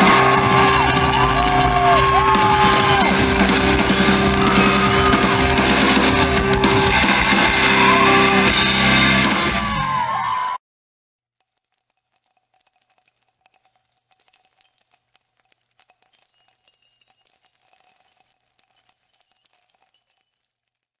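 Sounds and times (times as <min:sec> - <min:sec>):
small bells jingling: 0:00.0 - 0:05.6, 0:11.4 - 0:21.0
live hard rock music: 0:00.0 - 0:10.0.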